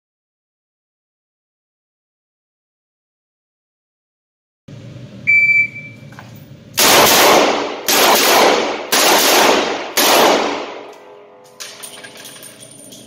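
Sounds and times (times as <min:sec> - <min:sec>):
revolver shots echoing indoors: 0:06.7 - 0:13.0.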